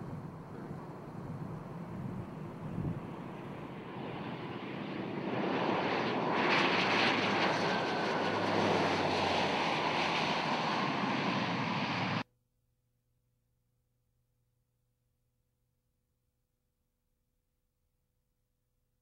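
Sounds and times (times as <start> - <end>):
turboprop engines rushing: 0.0 - 12.2.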